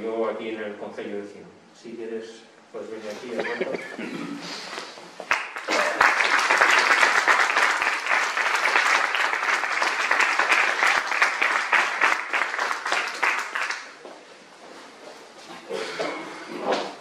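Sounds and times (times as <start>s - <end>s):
audience applauding: 5.3s - 14.0s.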